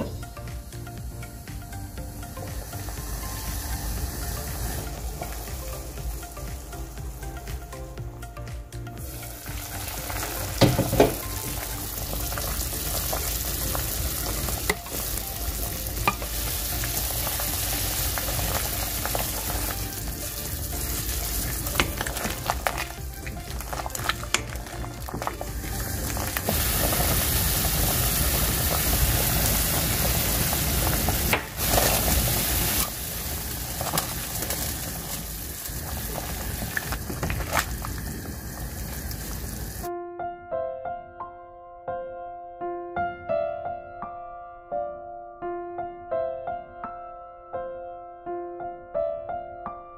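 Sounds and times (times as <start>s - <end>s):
soup boiling and bubbling: 0.0s - 39.9s.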